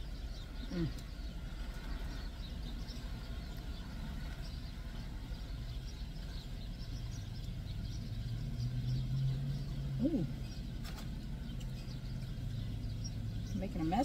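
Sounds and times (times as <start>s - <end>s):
woman humming mmm: 0.7s - 1.1s, 10.0s - 10.4s.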